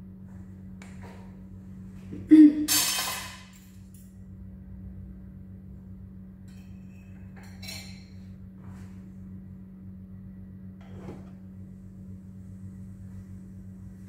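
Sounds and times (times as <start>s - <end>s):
steady low hum: 0.0s - 14.0s
kitchen utensils clattering: 2.7s - 3.8s, 6.5s - 8.2s.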